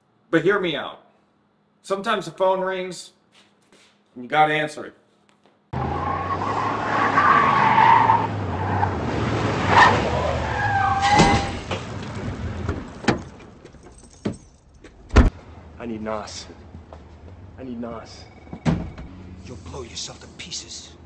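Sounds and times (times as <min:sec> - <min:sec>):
tyre squeal: 0:09.7 - 0:11.8.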